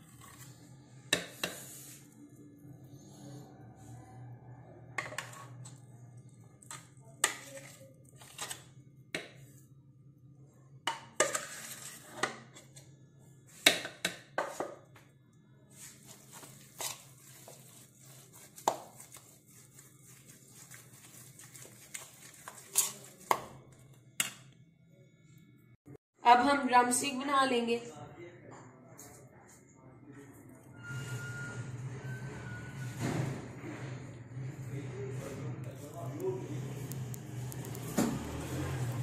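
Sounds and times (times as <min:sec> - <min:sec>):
metal spoon scraping plastic bowl: 0:05.0 - 0:05.8, 0:06.6 - 0:08.7, 0:11.2 - 0:12.8, 0:15.8 - 0:23.5.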